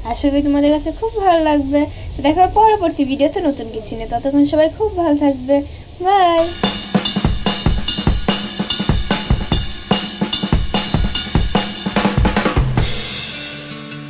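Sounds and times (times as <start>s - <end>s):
fast drum beat: 6.4s - 13.8s.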